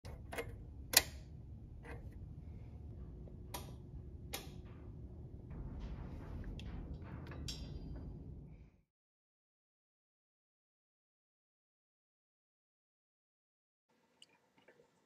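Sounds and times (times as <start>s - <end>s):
low background hum: 0.0s - 8.8s.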